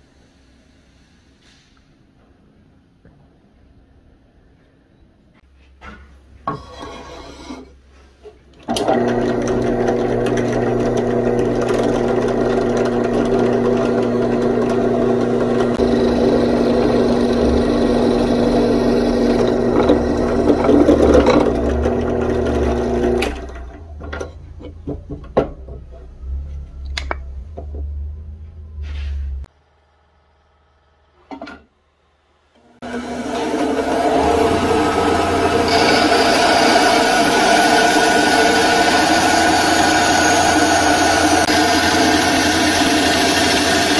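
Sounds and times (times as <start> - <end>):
drill press boring through wood: 8.7 - 23.8, 32.8 - 43.9.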